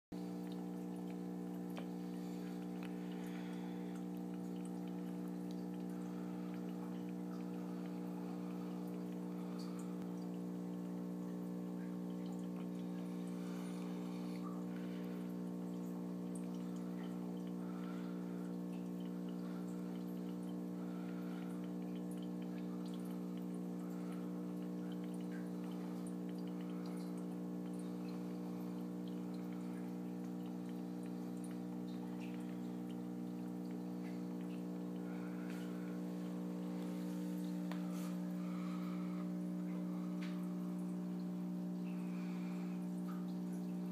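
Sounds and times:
aquarium pump humming: 0.2 - 43.9
water trickling and dripping: 0.2 - 43.9
faint ticks: 14.7 - 38.4.

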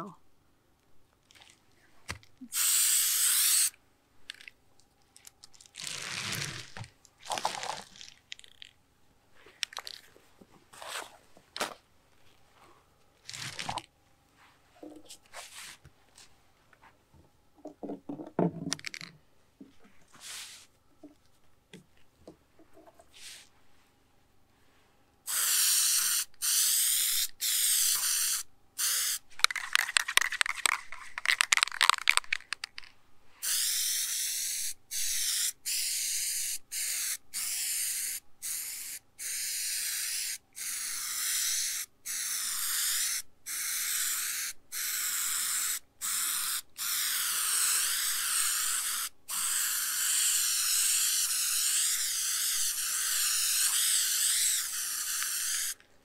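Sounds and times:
aerosol spray hissing: 2.5 - 3.7, 25.3 - 29.2, 33.4 - 55.8
rapid rattling clicks: 29.4 - 32.9.

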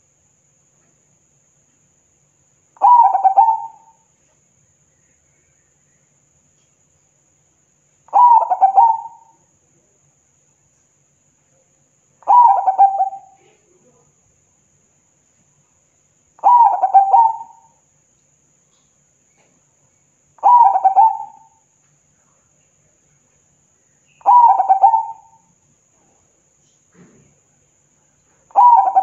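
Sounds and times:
dove cooing: 2.8 - 4.0, 8.1 - 9.4, 12.2 - 13.6, 16.4 - 17.7, 20.4 - 21.6, 24.2 - 25.4, 28.5 - 29.0.

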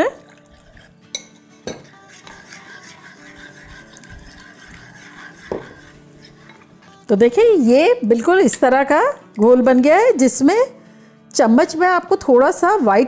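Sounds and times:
soft background music: 0.0 - 13.0
spoon stirring in bowl: 0.2 - 6.9
spoon clinking against bowl: 0.5 - 6.7.

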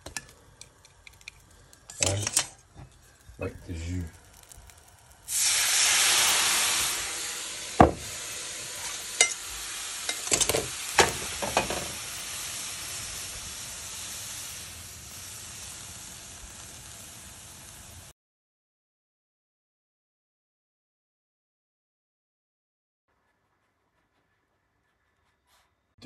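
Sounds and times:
liquid sizzling in a frying pan: 0.0 - 18.1.

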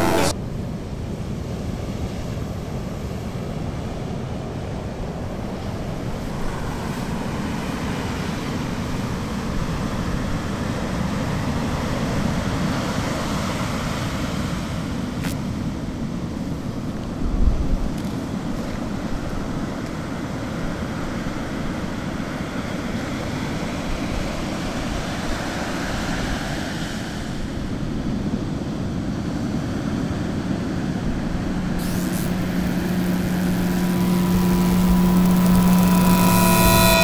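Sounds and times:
static hiss: 0.0 - 0.3, 31.8 - 37.0
electronic hum tones: 0.0 - 0.4, 31.5 - 37.0
wind: 0.0 - 37.0.

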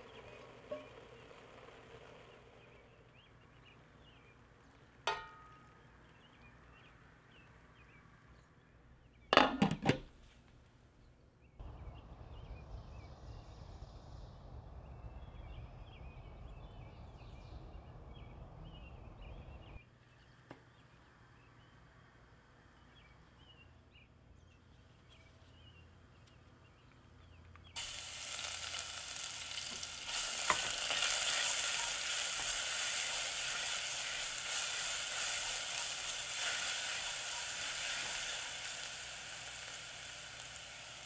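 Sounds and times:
glass lid clattering on metal pot: 9.4 - 10.0
bird chirps: 11.4 - 21.6
low rushing noise: 11.6 - 19.8.

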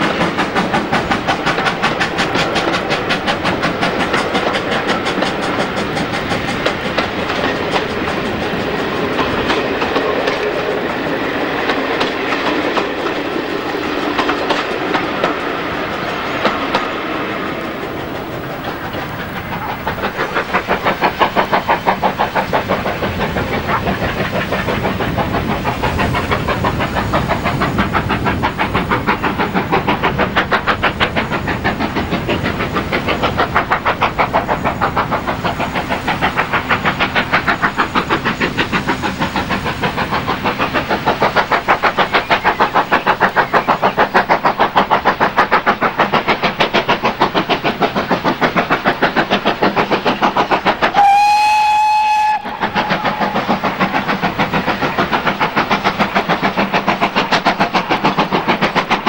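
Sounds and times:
steam locomotive exhaust beats: 0.0 - 59.0
steam whistle blast: 50.9 - 53.3.

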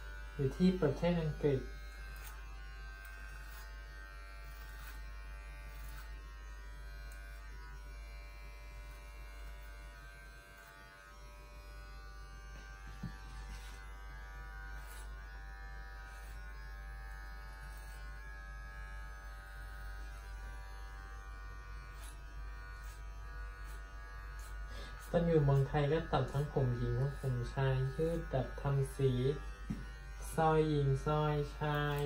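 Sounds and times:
electric hair clippers buzzing: 0.0 - 32.0.

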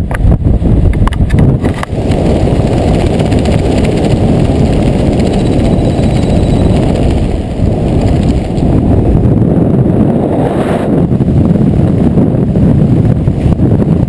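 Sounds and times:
wind rushing over microphone: 0.0 - 14.0
crackles: 0.9 - 9.3.

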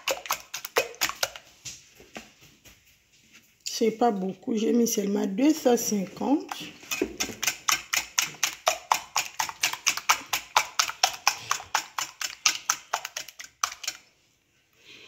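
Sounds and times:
whisk clicking against glass dish: 6.5 - 14.0.

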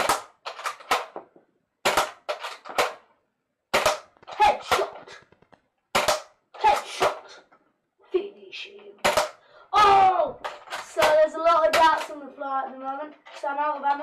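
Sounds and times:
toy blaster firing snaps and clicks: 0.0 - 1.2, 10.8 - 12.2.

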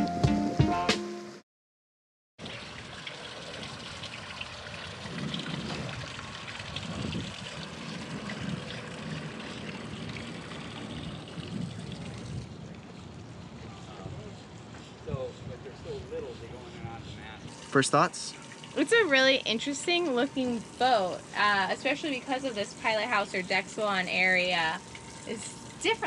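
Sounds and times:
water trickling: 2.4 - 13.9, 17.4 - 26.0.

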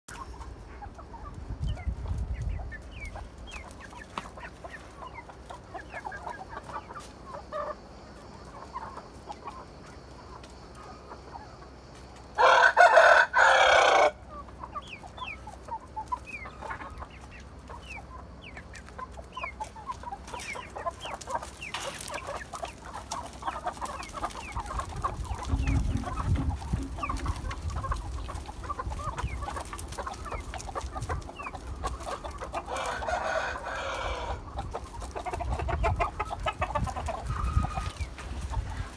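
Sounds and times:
chicks peeping: 0.1 - 38.9
hens clucking: 0.1 - 38.9
rooster crowing: 12.4 - 14.2, 32.7 - 34.4.

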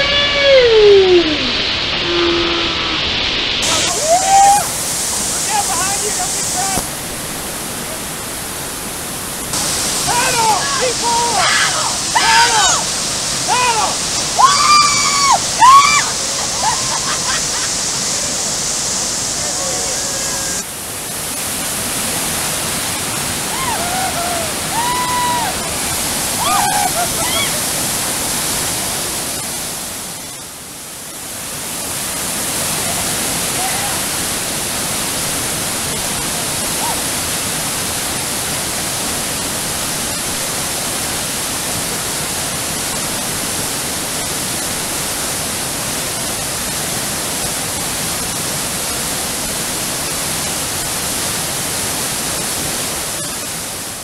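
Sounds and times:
whitewater pouring through waterfall: 0.0 - 54.0.

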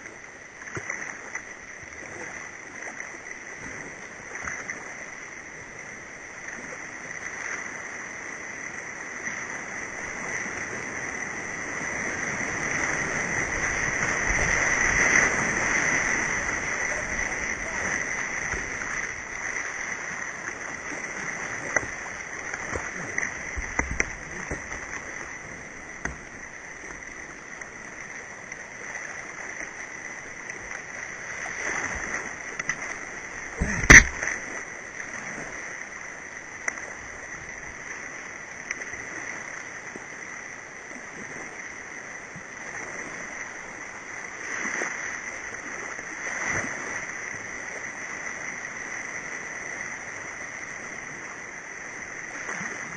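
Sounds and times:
churning whitewater rushing: 0.0 - 52.9
water splashing against hull: 0.0 - 52.9
sharp knock on kayak: 33.6 - 34.3.

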